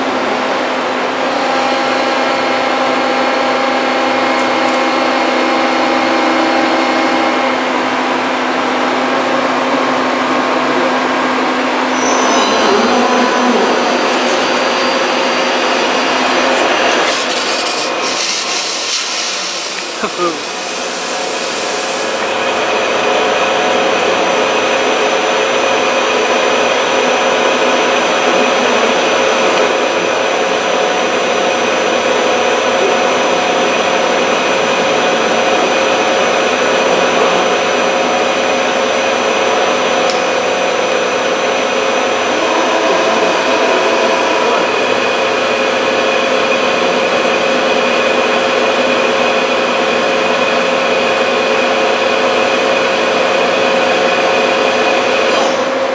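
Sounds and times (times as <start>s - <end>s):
drilling machine whirring: 11.8s - 23.2s.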